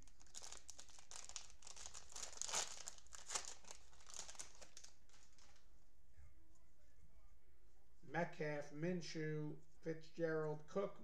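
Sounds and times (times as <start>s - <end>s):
plastic wrapper crinkling: 0.0s - 5.7s.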